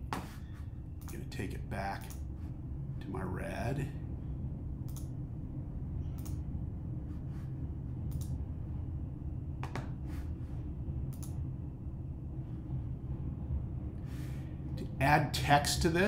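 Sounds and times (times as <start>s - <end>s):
low room and computer hum: 0.0s - 16.0s
computer mouse clicks: 4.9s - 5.1s, 6.2s - 6.4s, 8.1s - 8.4s, 11.1s - 11.4s.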